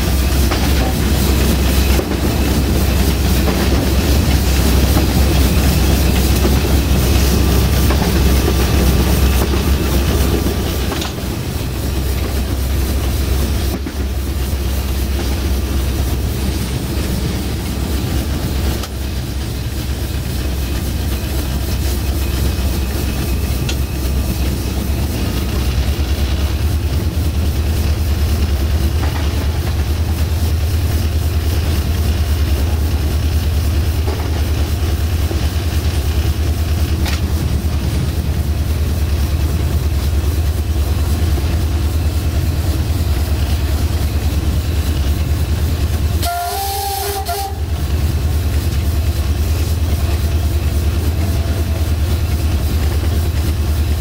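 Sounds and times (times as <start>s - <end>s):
diesel locomotive engine running: 0.0s - 54.0s
locomotive horn chord: 46.2s - 47.7s.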